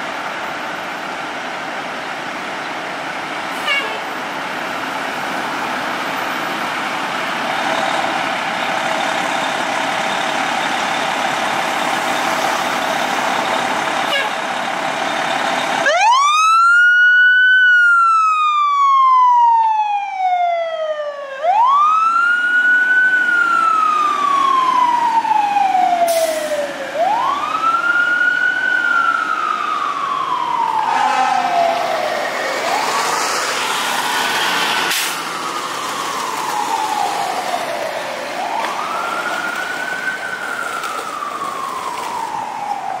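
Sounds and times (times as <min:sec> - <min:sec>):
fire truck siren wailing: 0:00.0 - 0:43.0
rapid siren pulsing: 0:15.6 - 0:43.0.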